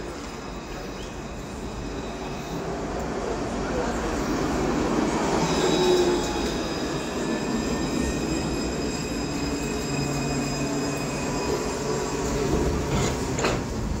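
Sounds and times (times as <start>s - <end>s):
tram rumble with whine: 0.0s - 14.0s.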